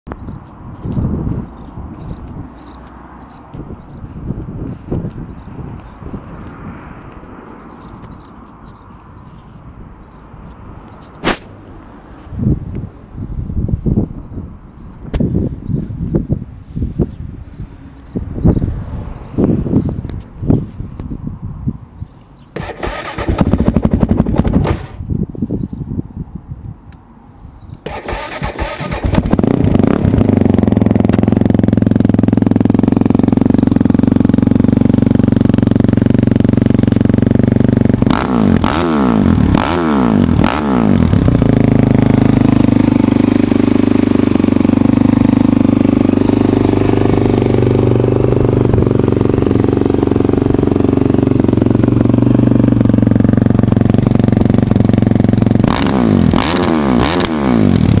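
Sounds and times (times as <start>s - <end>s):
motorcycle engine idling: 0.2s - 6.7s, 27.8s - 56.4s.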